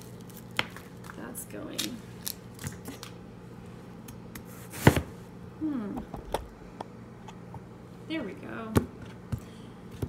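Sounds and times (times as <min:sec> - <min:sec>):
onion skin crackling: 0:00.0 - 0:03.1
steady low hum: 0:00.0 - 0:10.0.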